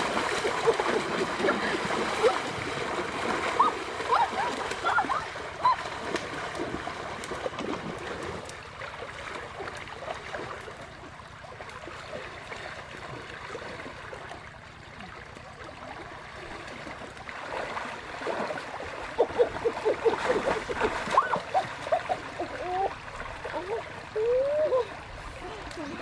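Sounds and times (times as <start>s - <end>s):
person wading through water splashing: 0.0s - 26.0s
shallow stream running: 0.0s - 26.0s.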